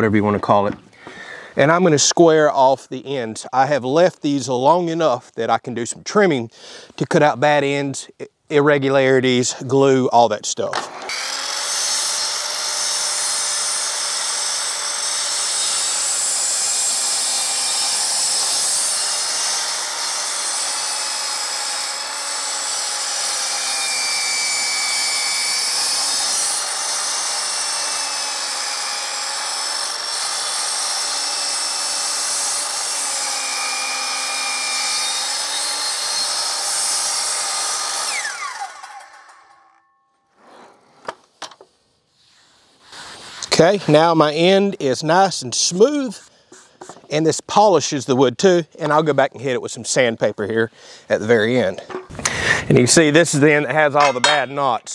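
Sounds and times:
miter saw cutting wood: 10.7s - 39.8s
saw blade winding down: 10.7s - 39.9s.

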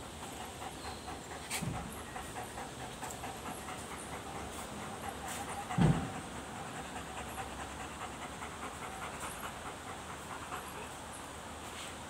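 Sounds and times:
dog panting: 0.0s - 11.4s
dull thump: 5.8s - 6.2s.

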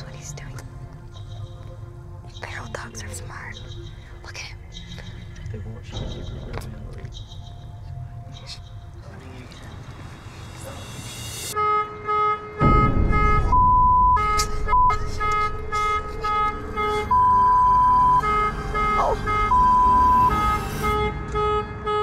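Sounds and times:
car alarm beeping: 11.6s - 22.0s.

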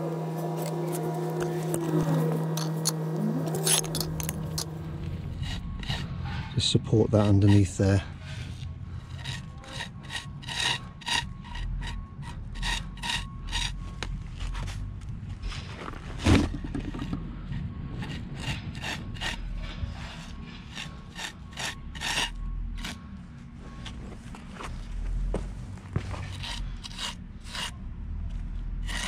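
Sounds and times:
pointing tool scraping mortar: 2.5s - 14.8s, 16.7s - 23.0s, 26.1s - 27.8s, 28.8s - 29.0s.

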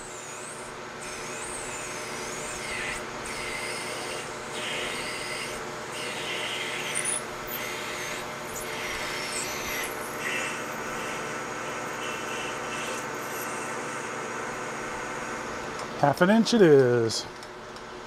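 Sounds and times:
metal cutting scratch: 0.0s - 14.1s
lathe motor hum: 0.0s - 16.5s.

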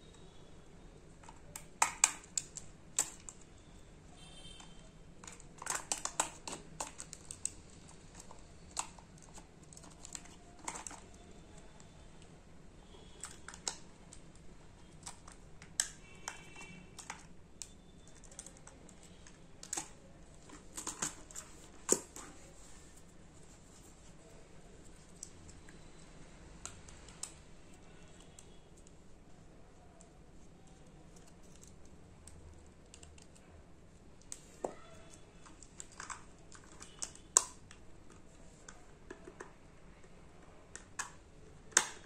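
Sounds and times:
hard plastic toy car clicks: 1.2s - 3.4s, 4.5s - 7.6s, 40.7s - 42.0s.

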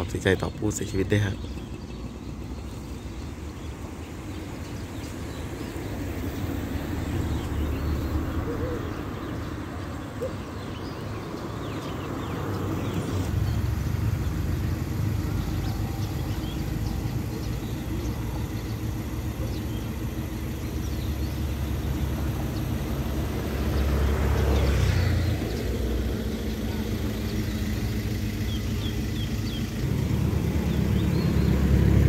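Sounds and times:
vehicle engine rumbling: 0.0s - 32.0s.

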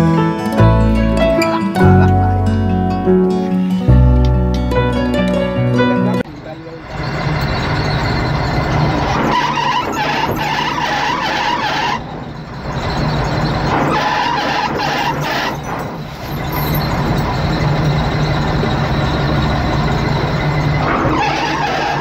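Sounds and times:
high whine: 0.0s - 22.0s
boat engine and winch running: 6.3s - 22.0s.

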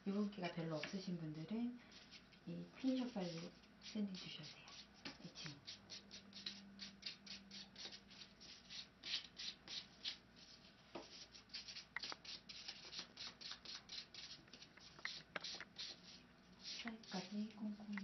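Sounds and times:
nail file rasping on fingernail: 3.2s - 10.2s, 11.2s - 17.4s.

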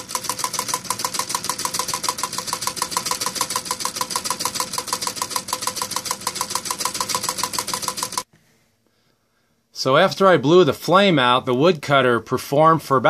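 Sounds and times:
rapid even clacking: 0.0s - 8.2s
stirling engine running: 0.0s - 8.2s.

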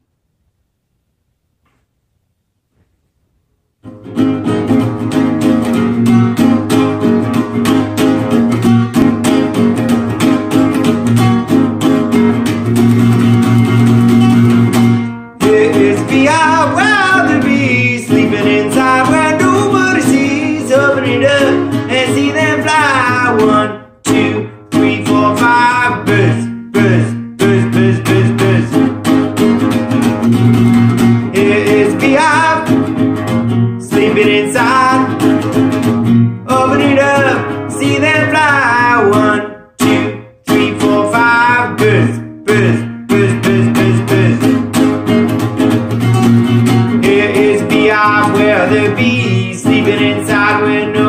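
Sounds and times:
classical guitar strumming: 3.8s - 51.0s
man singing: 15.4s - 29.1s, 31.0s - 44.8s, 46.7s - 51.0s.

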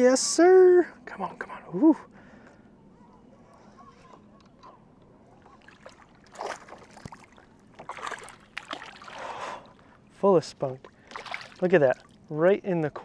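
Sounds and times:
fish splashing in water: 5.6s - 9.6s, 11.0s - 12.2s.

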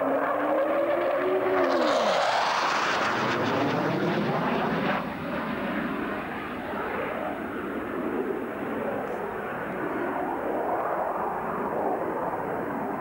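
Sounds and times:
aircraft engine passing overhead: 0.0s - 13.0s.

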